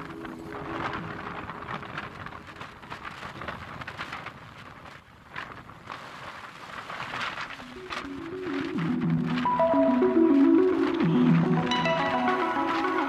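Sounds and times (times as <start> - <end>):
faint music: 0.0 - 4.2, 7.1 - 13.0
wind and road noise: 0.0 - 9.5.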